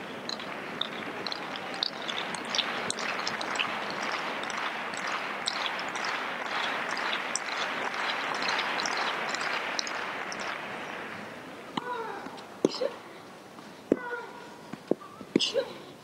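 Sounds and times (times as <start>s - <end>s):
crowd applauding: 0.0s - 11.5s.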